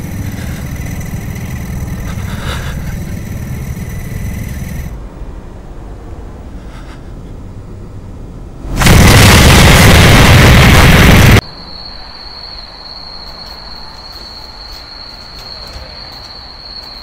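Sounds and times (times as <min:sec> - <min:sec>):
loud blast of harsh noise: 0:08.6 - 0:11.4.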